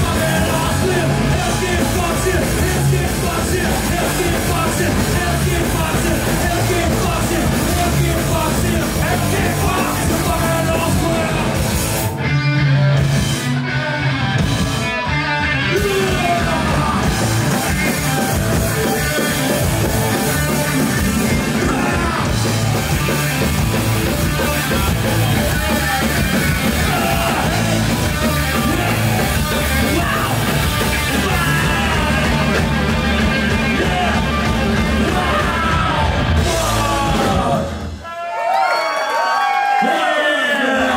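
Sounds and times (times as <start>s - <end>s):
singer yelling into microphone: 0.0s - 11.6s, 15.6s - 17.2s, 21.2s - 22.4s, 25.3s - 32.5s, 33.5s - 38.5s
punk rock band playing: 0.0s - 38.0s.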